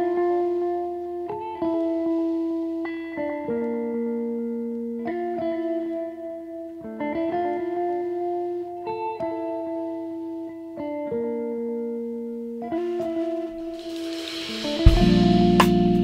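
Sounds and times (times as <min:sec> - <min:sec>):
plucked chords background music: 0:01.1 - 0:16.0.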